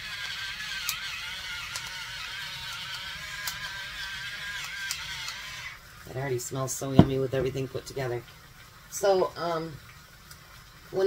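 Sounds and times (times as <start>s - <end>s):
pepper grinder turning: 0.0s - 5.6s
food frying in a pan: 7.2s - 11.0s.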